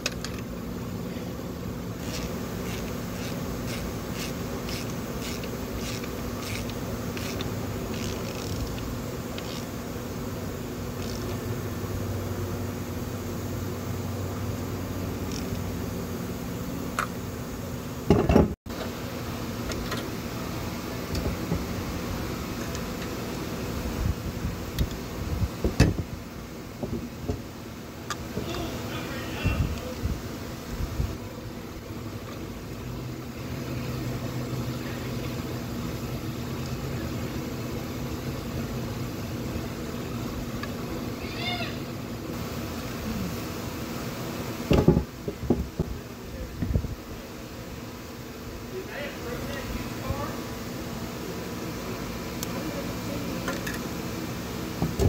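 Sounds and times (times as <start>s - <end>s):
steady low hum: 0.0s - 55.0s
metallic clatter of ratchet wrench: 2.0s - 8.8s.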